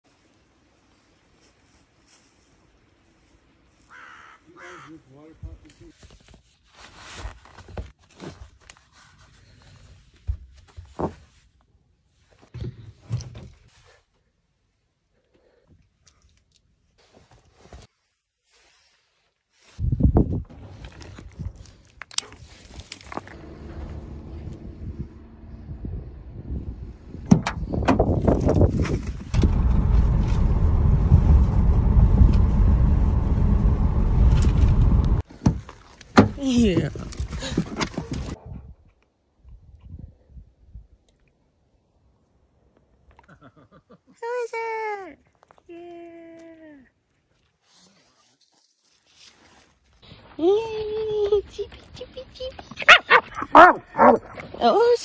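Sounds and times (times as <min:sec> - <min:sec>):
wind and road noise in car: 0:23.0 - 0:35.3.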